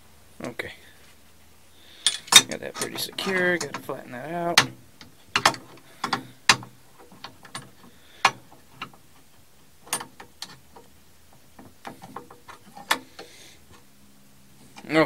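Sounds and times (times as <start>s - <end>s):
drill press chuck metal clicks: 2.0s - 9.0s, 9.9s - 10.9s, 11.6s - 13.4s.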